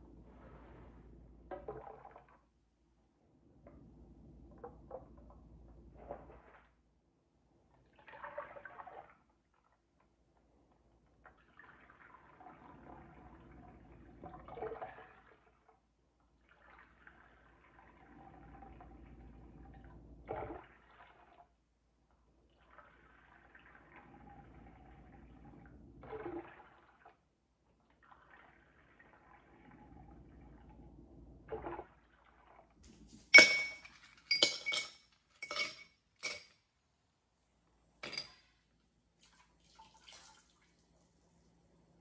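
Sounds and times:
liquid pouring and splashing: 1.5 - 2.5, 7.8 - 9.8, 11.2 - 21.6, 22.4 - 30.8, 31.4 - 33.0, 39.2 - 41.0.

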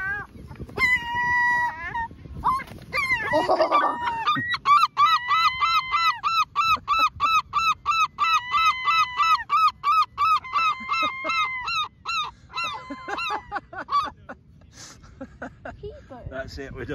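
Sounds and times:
gulls calling: 0.0 - 14.6
wings flapping: 2.5 - 3.6.

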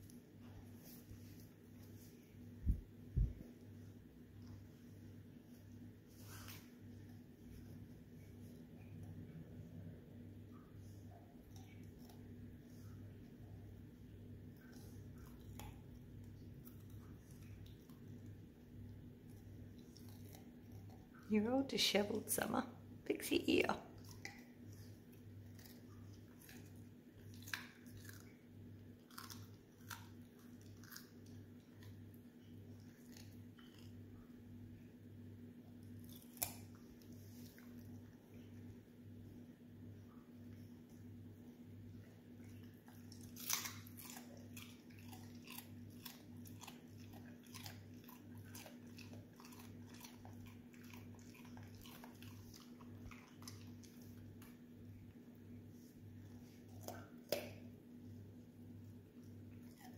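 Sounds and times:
dog crunching a carrot: 10.8 - 13.3, 14.4 - 21.4, 23.9 - 34.6, 35.6 - 38.7, 40.5 - 59.9.

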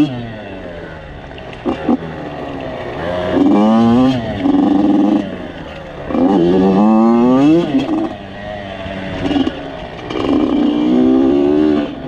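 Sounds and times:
two-stroke engine revving: 0.0 - 12.0.

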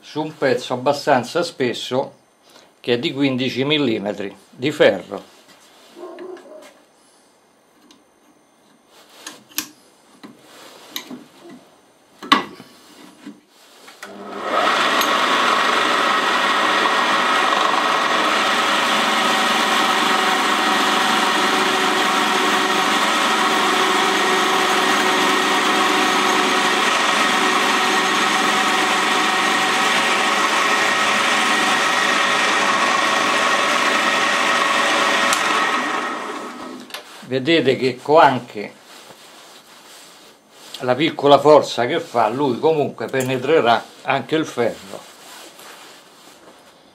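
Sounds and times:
drill press humming: 14.0 - 37.0
drill bit drilling into iron: 14.4 - 36.0.

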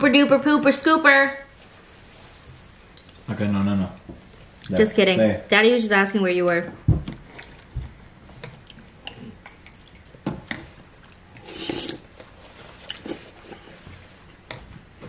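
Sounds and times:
chewing: 7.2 - 14.4.

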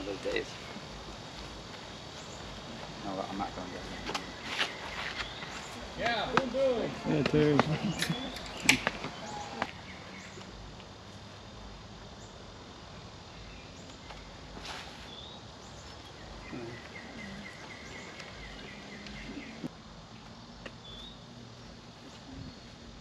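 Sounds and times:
birds chirping: 0.0 - 23.0
insects: 0.0 - 23.0.

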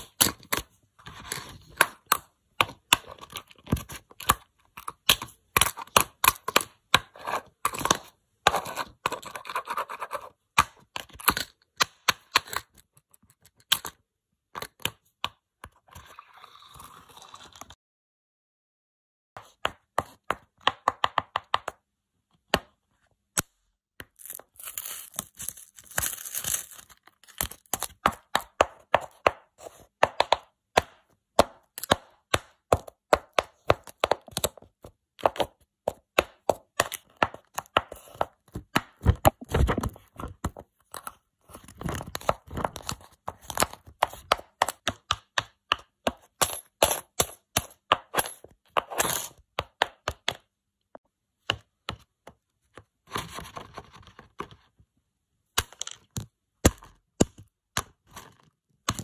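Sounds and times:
candies crunching: 24.0 - 28.1.

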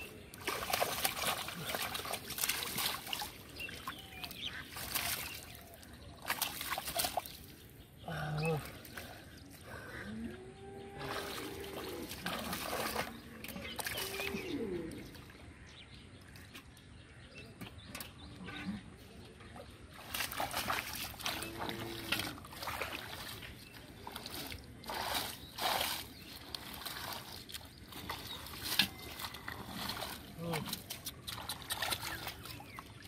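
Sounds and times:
muddy water splashing: 0.0 - 17.0, 18.8 - 33.0.

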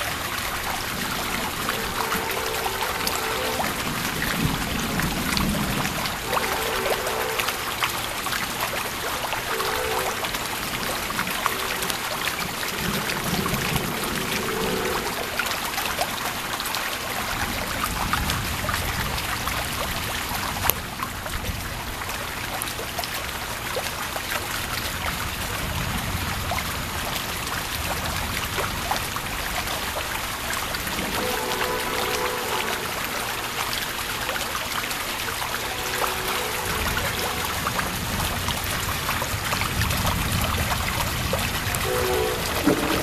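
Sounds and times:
heavy rain: 0.0 - 43.0
thunder rumbling: 0.6 - 7.0, 10.5 - 15.8, 36.7 - 43.0.

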